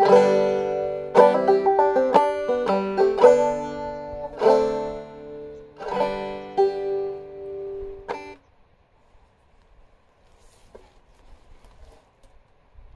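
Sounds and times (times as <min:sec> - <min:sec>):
banjo ringing chords: 0:00.0 - 0:08.4.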